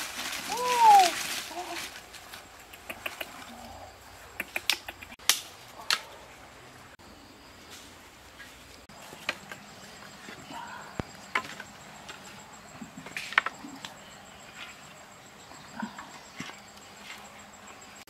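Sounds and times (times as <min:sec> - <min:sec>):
sticks and firewood clicking: 0:00.0 - 0:06.1, 0:09.0 - 0:14.0.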